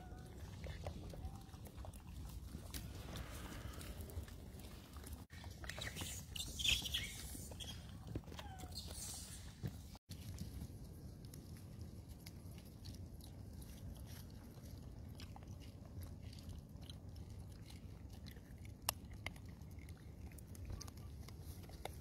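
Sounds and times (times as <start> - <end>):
monkey chewing fruit: 0.0 - 9.5, 10.1 - 22.0.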